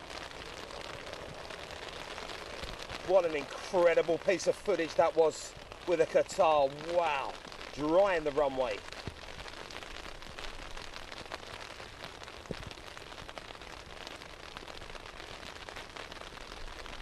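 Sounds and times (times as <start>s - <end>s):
steady rain hiss: 0.0s - 17.0s.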